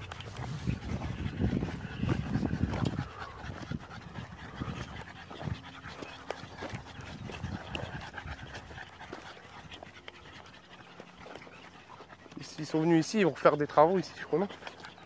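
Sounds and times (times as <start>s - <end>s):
footsteps on gravel: 0.0s - 14.9s
dog panting: 0.0s - 15.0s.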